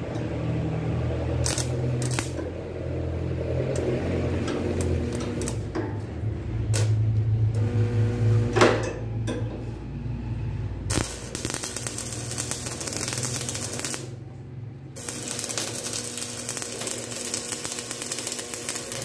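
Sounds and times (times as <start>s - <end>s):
electric arc welding crackle: 1.2s - 2.4s, 3.1s - 5.7s, 6.7s - 7.0s, 7.6s - 8.6s, 10.9s - 14.2s, 15.0s - 19.0s.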